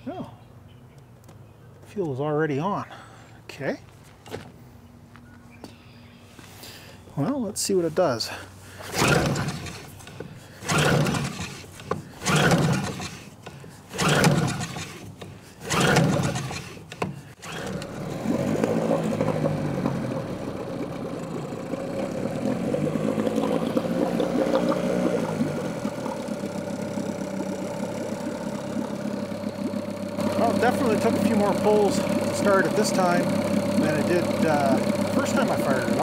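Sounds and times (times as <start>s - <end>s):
outboard engine running: 8.6s - 36.0s
recoil starter cord rips: 8.8s - 20.0s.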